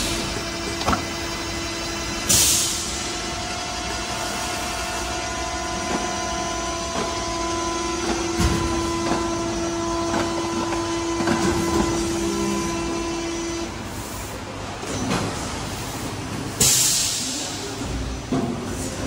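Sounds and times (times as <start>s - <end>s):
hiss of released air: 2.3s - 3.0s, 16.6s - 17.6s.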